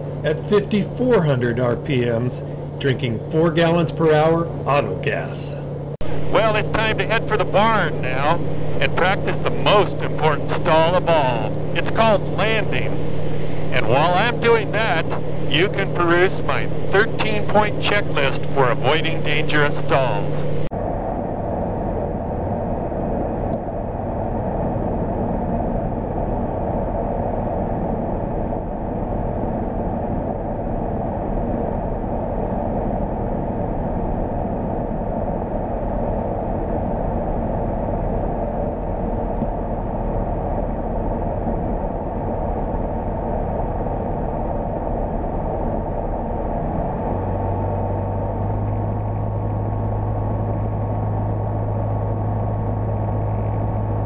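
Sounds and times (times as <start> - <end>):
airplane engine and propeller drone: 0.0 - 54.0
deep steady hum: 0.0 - 54.0
rushing air: 6.0 - 19.6.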